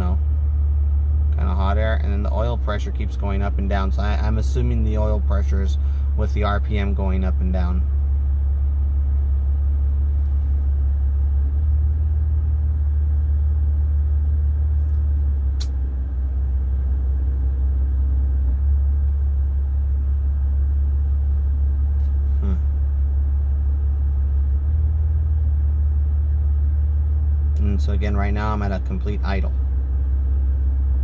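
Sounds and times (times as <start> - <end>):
car engine idling: 0.0 - 31.0
sharp click: 14.8 - 15.8.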